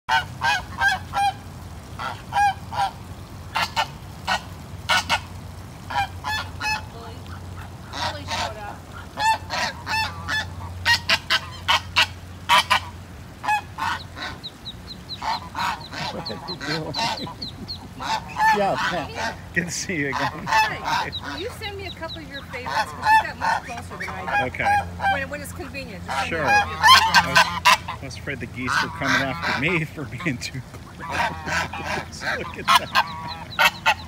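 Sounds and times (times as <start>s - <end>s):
ducklings peeping: 0.1s - 34.0s
geese honking: 0.1s - 34.0s.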